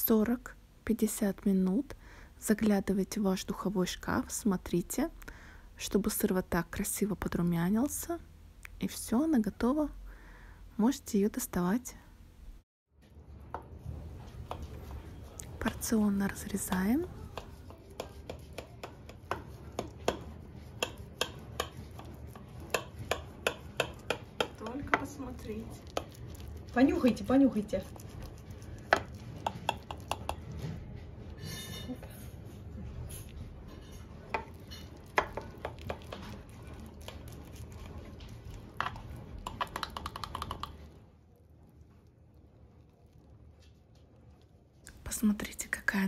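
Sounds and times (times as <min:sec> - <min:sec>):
knife scraping glass dish: 0:31.4 - 0:32.2, 0:33.1 - 0:36.4.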